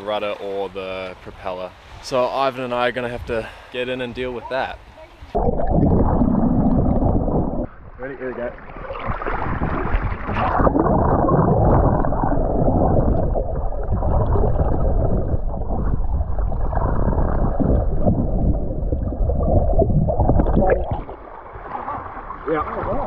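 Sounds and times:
muffled underwater rushing and bubbling: 5.2 - 23.0
water splash: 5.3 - 23.0.

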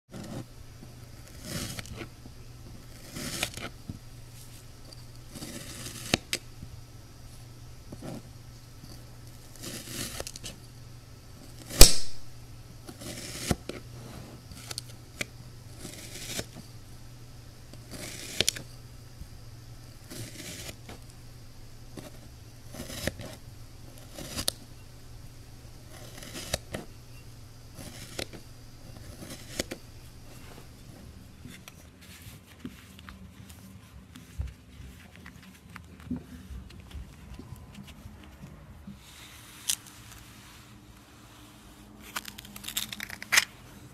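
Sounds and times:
tool scraping sand: 0.1 - 6.7, 7.3 - 10.7, 12.8 - 17.0, 17.6 - 31.8
faint low hum: 0.1 - 43.9
sharp loud click: 11.7 - 12.3.

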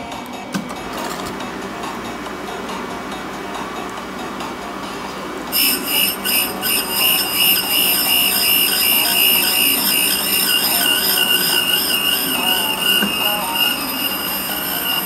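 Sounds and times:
grinding wheel screeching on metal: 5.5 - 15.0.

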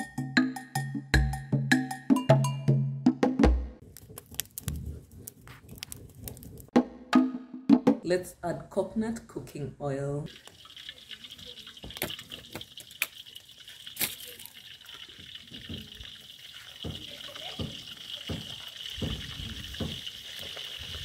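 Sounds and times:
wooden spoon scraping a pan: 3.8 - 6.8
oil hissing in a wok: 10.3 - 21.0.

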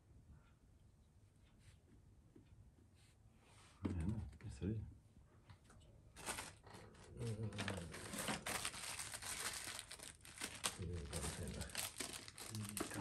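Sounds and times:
crinkling and rustling: 5.6 - 13.0.

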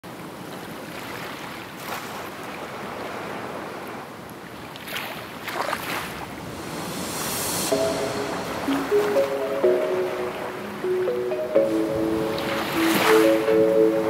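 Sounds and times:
ocean waves washing in: 2.8 - 14.0.

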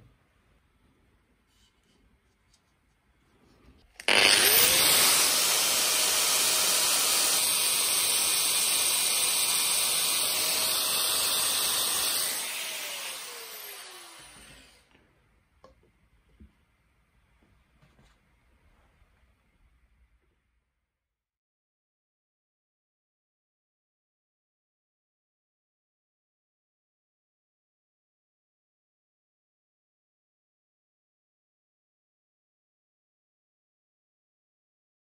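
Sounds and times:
power sander sanding wood: 4.0 - 14.8.

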